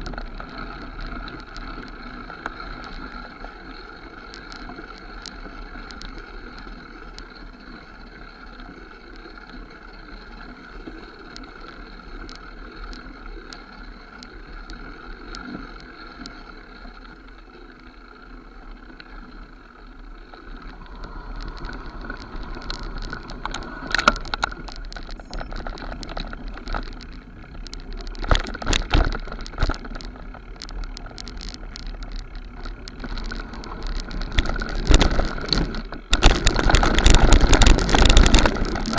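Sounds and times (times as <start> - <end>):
bike tyres rolling on dirt: 0.0 - 38.9
bike rattling and clunking: 19.6 - 38.9.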